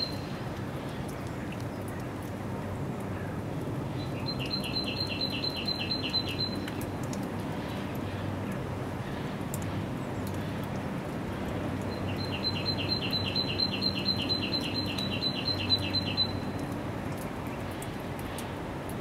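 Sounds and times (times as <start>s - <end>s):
small songbird singing: 0.0s - 0.4s, 3.9s - 6.8s, 11.9s - 16.7s.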